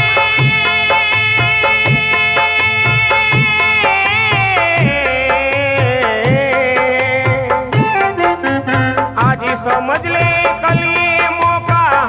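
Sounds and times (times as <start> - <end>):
hand drum beat: 0.0 - 0.8, 1.8 - 3.8, 4.4 - 5.3, 6.2 - 8.2, 9.2 - 11.9
held instrumental notes: 0.0 - 12.0.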